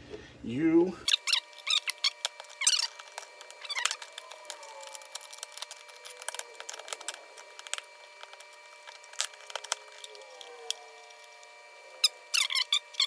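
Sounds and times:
plastic clicking and rattling: 0:01.8 - 0:11.4.

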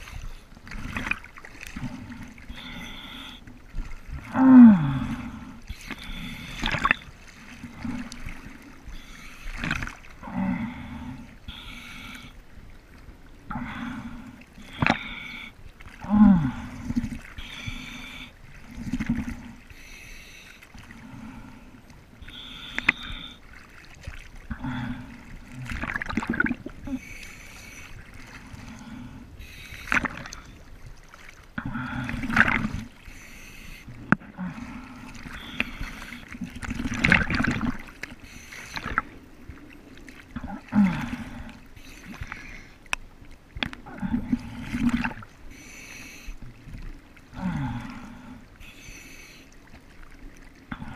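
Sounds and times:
sea water sloshing against camera: 0:00.0 - 0:50.9.

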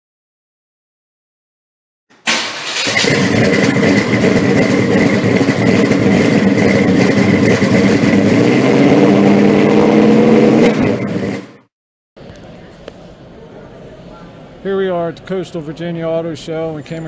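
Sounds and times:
car engine running: 0:02.4 - 0:11.6.

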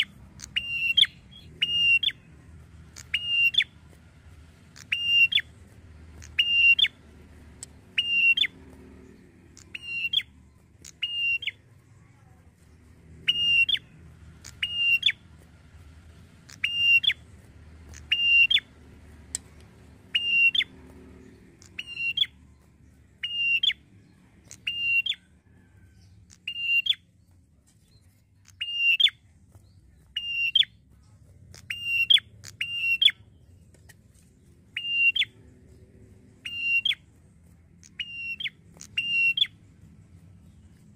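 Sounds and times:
bird calling sharp high notes: 0:00.0 - 0:02.3, 0:02.9 - 0:03.8, 0:04.7 - 0:05.5, 0:06.2 - 0:07.0, 0:07.9 - 0:08.6, 0:09.6 - 0:11.6, 0:13.2 - 0:15.2, 0:16.5 - 0:17.2, 0:17.9 - 0:18.7, 0:20.1 - 0:20.7, 0:23.2 - 0:23.8, 0:34.7 - 0:35.4, 0:36.4 - 0:37.0, 0:37.8 - 0:39.6.

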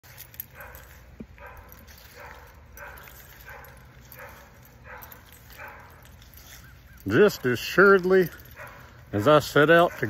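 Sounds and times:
dog barking: 0:00.4 - 0:07.6, 0:08.4 - 0:10.0.

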